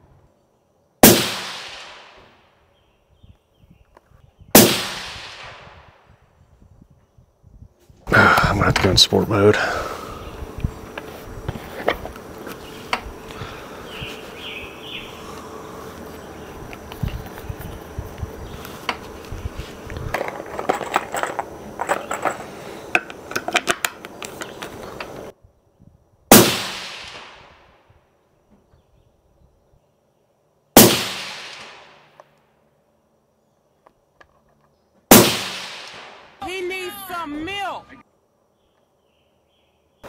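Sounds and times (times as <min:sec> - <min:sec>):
suppressed rifle shots: 0:01.0 - 0:02.3, 0:04.6 - 0:05.9, 0:26.3 - 0:27.5, 0:30.8 - 0:32.1, 0:35.1 - 0:36.4
echo of gunshot: 0:01.0 - 0:02.4, 0:04.6 - 0:06.0, 0:26.3 - 0:27.6, 0:30.8 - 0:32.1, 0:35.1 - 0:36.4.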